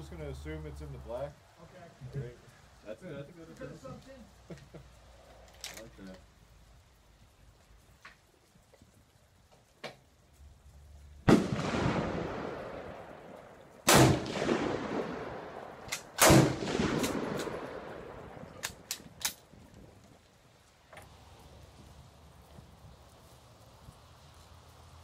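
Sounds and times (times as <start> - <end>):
rifle shots with rolling echo: 11.2 - 19.6.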